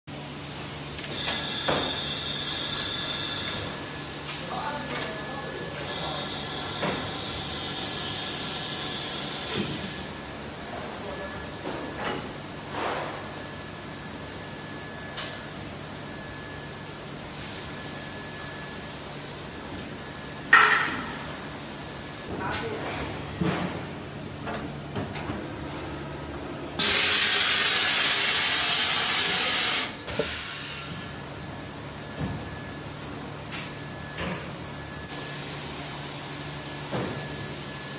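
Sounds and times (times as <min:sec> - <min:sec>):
machine air hiss: 0:00.1 - 0:04.8, 0:05.4 - 0:10.1, 0:26.8 - 0:31.4, 0:35.0 - 0:37.9.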